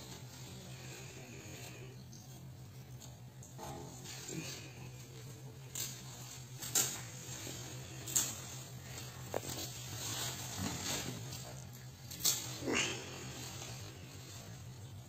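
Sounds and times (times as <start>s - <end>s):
steady low hum: 0.0s - 15.0s
goats scuffling: 5.0s - 12.6s.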